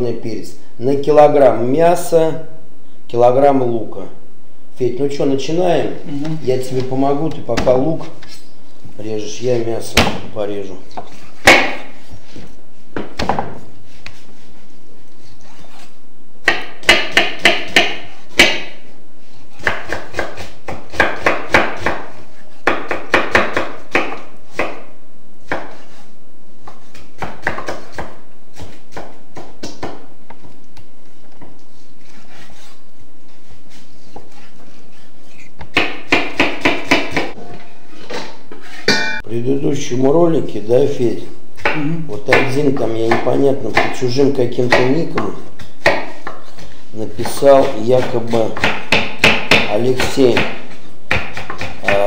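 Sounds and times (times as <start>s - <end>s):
knife chopping on wooden board: 16.4s - 18.8s, 19.6s - 25.8s, 26.7s - 30.0s, 35.6s - 37.4s, 41.6s - 46.6s, 47.2s - 52.0s.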